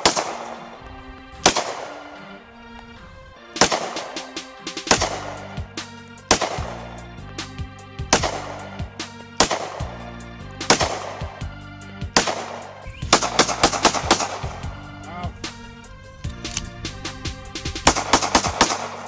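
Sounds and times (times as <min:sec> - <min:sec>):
handgun shots: 0:00.0 - 0:00.6, 0:01.4 - 0:02.0, 0:03.6 - 0:05.6, 0:06.3 - 0:06.9, 0:08.1 - 0:10.0, 0:10.6 - 0:11.4, 0:12.2 - 0:14.6, 0:17.8 - 0:19.0
loud background music: 0:00.0 - 0:19.0.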